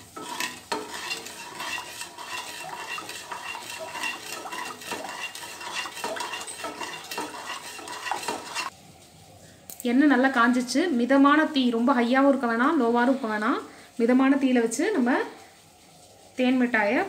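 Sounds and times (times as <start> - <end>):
wooden spatula scraping metal pan: 0.0 - 8.7.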